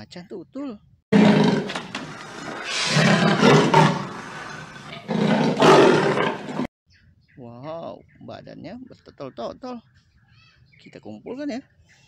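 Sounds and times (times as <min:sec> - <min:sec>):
big cat roaring and growling: 0:01.1 - 0:06.7.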